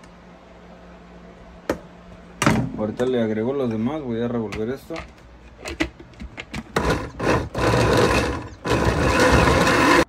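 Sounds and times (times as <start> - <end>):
blender motor running: 6.7 - 10.0.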